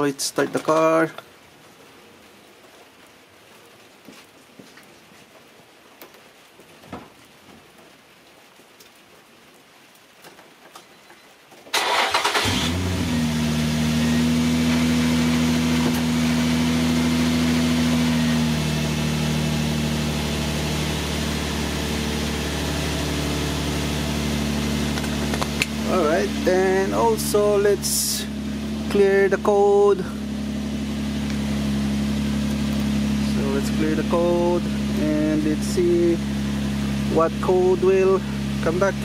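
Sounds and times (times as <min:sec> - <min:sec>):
light rain pattering: 0:00.0 - 0:11.9, 0:29.9 - 0:33.6
car engine cranking and idling: 0:11.7 - 0:39.0.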